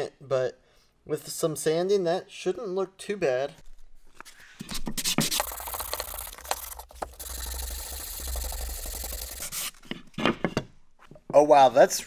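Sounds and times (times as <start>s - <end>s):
sandpaper rubbing on wood: 4.7s - 6.0s, 8.8s - 9.8s.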